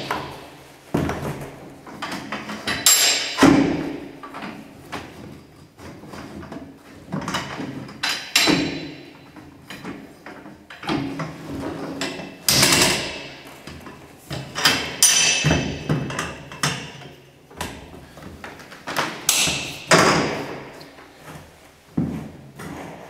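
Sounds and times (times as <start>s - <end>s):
metal cargo bars clunking: 6.3s - 20.8s.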